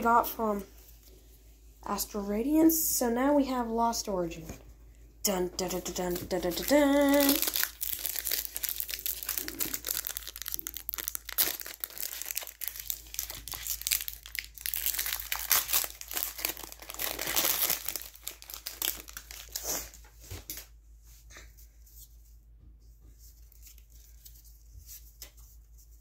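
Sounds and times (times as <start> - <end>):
foil wrapper crinkling: 5.6 - 20.0.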